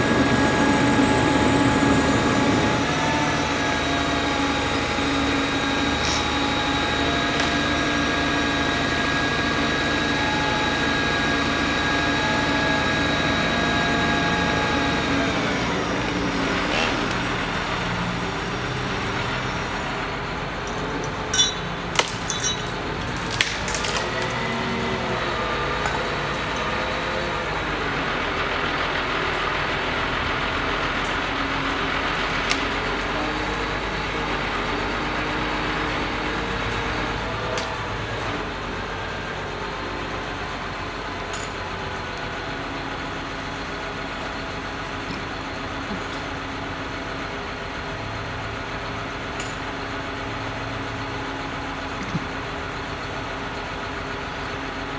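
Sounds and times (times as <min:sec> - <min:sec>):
crane engine running: 0:00.0 - 0:54.9.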